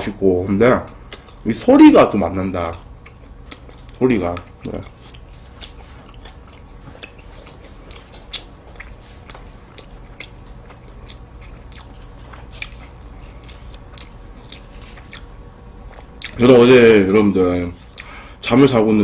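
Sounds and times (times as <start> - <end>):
chewing soft pastry: 0.9 - 16.9, 17.7 - 18.2.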